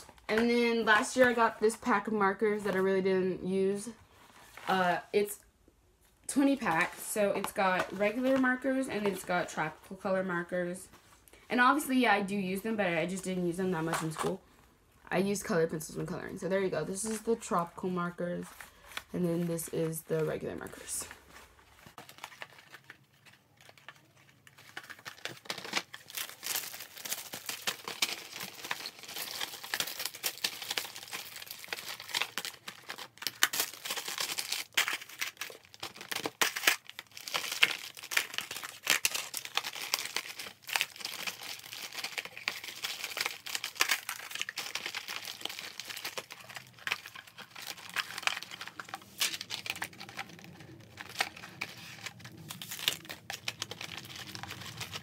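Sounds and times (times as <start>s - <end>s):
packaging crinkling and rustling: 20.6s - 55.0s.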